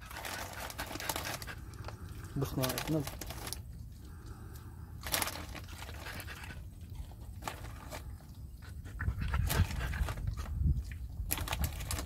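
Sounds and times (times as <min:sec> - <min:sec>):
dogs panting: 0:00.1 - 0:02.6, 0:05.7 - 0:10.6.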